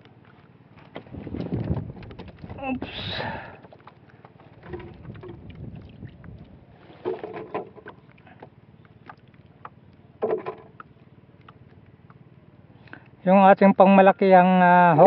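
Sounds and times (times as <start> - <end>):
fishing gear clicks and knocks: 0.0 - 12.2
water lapping against canoe: 0.0 - 13.2
loud short knocks or splashes: 0.9 - 8.0.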